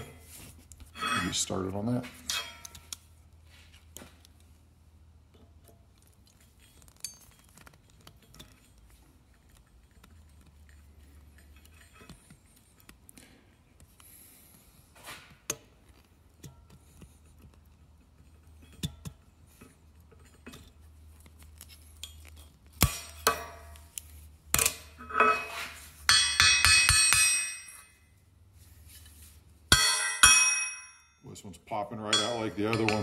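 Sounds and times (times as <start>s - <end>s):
steel parts clattering on bench: 1.0s - 1.5s, 24.6s - 27.9s, 32.1s - 33.0s
sharp metal knocks: 26.1s - 27.8s, 29.7s - 31.1s, 32.1s - 33.0s.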